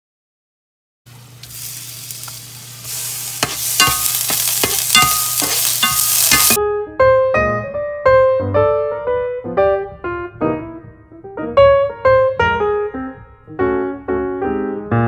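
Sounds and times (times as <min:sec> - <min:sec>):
garlic sizzling in oil: 0:01.1 - 0:06.6
metal utensil scraping a pan: 0:02.9 - 0:06.6.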